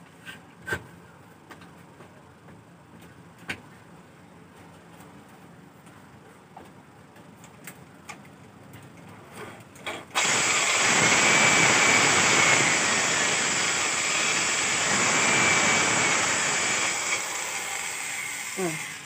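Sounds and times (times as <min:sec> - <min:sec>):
electric drill boring wood: 0:10.2 - 0:19.0.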